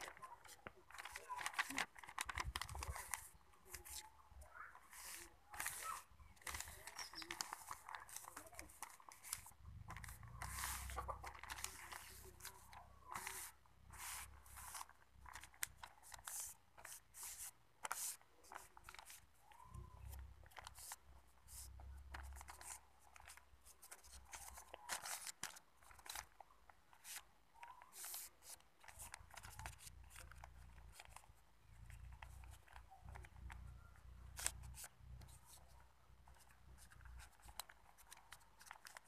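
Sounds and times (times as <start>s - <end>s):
paper rustling and crinkling: 0.0s - 39.0s.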